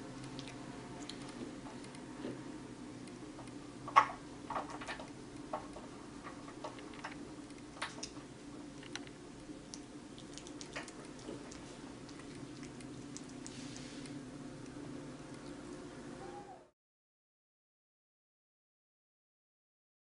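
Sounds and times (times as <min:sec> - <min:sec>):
low steady hum: 0:00.0 - 0:16.7
kitten licking wet clicks: 0:00.1 - 0:02.0, 0:08.8 - 0:15.8.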